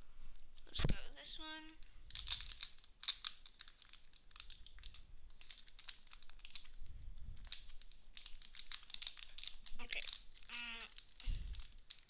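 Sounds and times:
foil wrapper crinkling: 1.7 - 6.8, 7.4 - 12.0
foil wrapper tearing: 2.1 - 6.7, 7.4 - 12.0.

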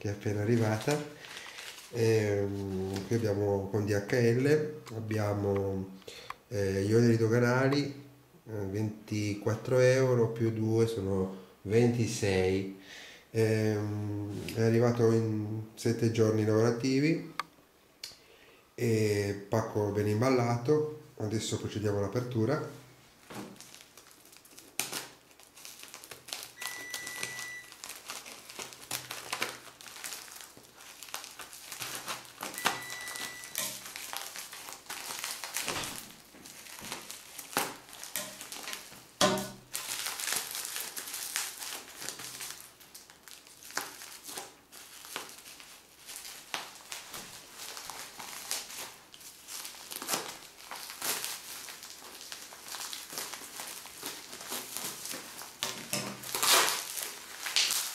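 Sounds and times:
packing tape crinkling: 0.0 - 3.4, 23.2 - 57.9
short high beeps: 26.6 - 27.7, 32.6 - 33.7.

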